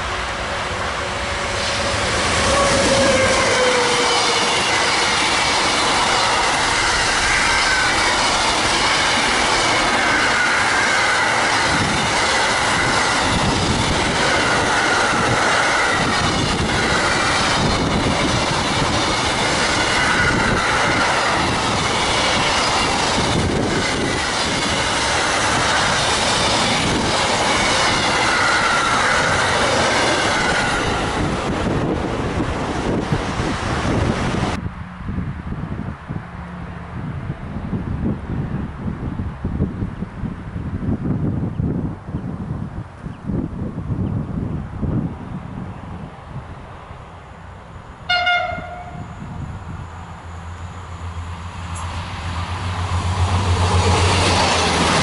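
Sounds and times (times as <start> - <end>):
locomotive passing: 0.0 - 42.0, 44.4 - 55.0
freight train rumbling and clattering: 0.0 - 47.3, 48.0 - 55.0
high whining tones: 0.4 - 31.2.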